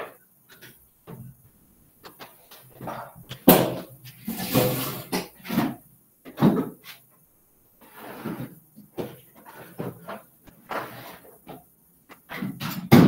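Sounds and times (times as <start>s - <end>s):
rummaging bumps scrapes and rustles: 7.8s - 12.6s.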